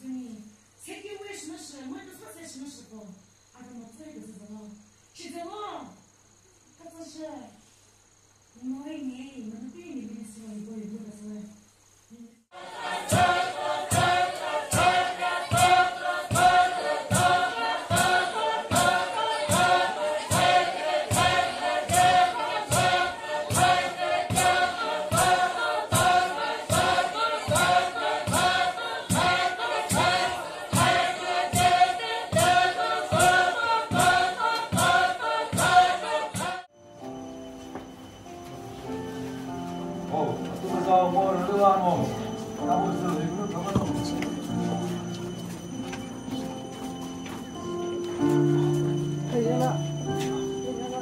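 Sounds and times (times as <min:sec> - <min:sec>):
congregation singing: 0:12.5 - 0:36.7, 0:39.3 - 0:51.0.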